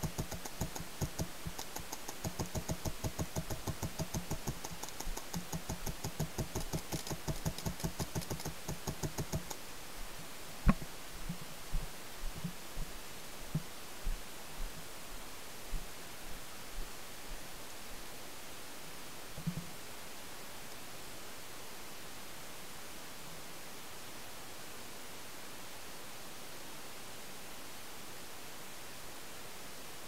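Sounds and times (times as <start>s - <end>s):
paintball marker firing: 0.0s - 9.6s.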